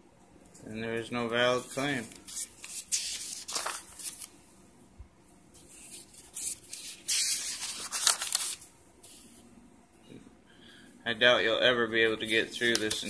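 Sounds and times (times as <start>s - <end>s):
paper pages rustling: 1.5s - 4.4s, 5.6s - 9.4s, 12.2s - 13.0s.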